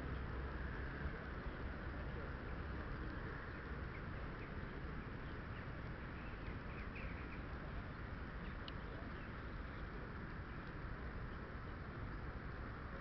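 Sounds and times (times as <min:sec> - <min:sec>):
wind rumble on microphone: 0:00.0 - 0:13.0
faint bird chirps: 0:02.4 - 0:10.7.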